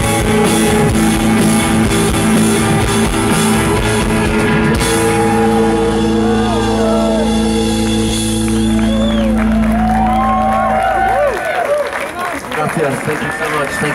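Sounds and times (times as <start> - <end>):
rock band playing live: 0.0 - 12.6
held chord ringing: 1.1 - 11.1.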